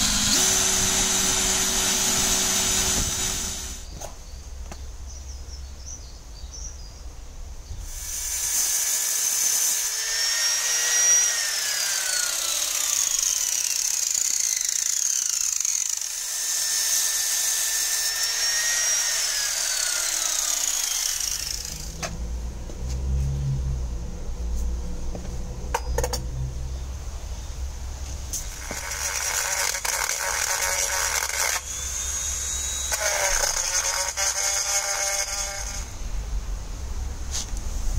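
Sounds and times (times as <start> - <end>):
angle grinder whining: 0.0 - 3.9, 7.9 - 22.1, 28.4 - 36.0
low rumble: 21.6 - 27.9.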